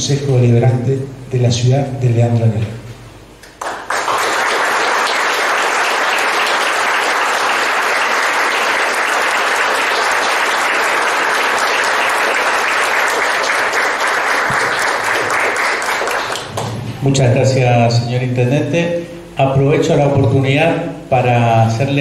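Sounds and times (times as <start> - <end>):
audience applauding: 3.4 - 16.8.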